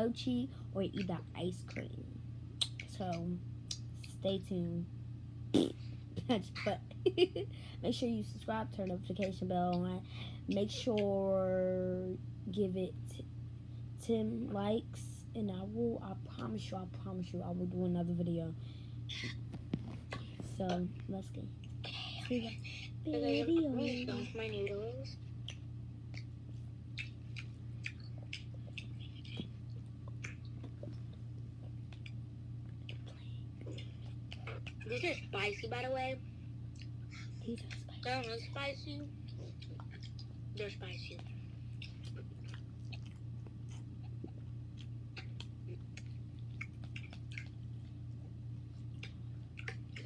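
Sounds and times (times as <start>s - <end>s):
steady low hum: 0.0s - 50.0s
person chewing noodles: 41.7s - 48.0s, 48.7s - 50.0s.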